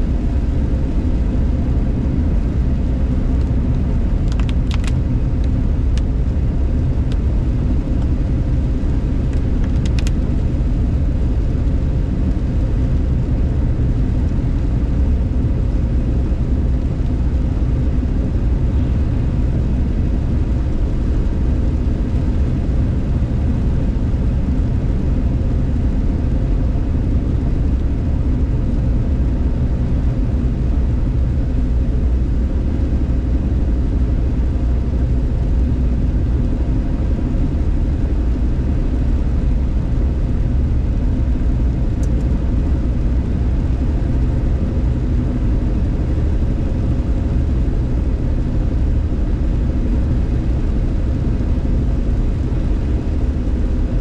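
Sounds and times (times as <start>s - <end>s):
car driving on wet road: 0.2s - 26.4s.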